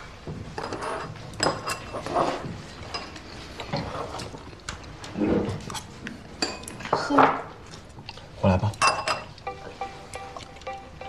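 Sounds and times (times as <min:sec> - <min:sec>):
utensils clinking on ceramic bowls: 0:00.6 - 0:04.3, 0:06.4 - 0:07.1, 0:08.7 - 0:09.8.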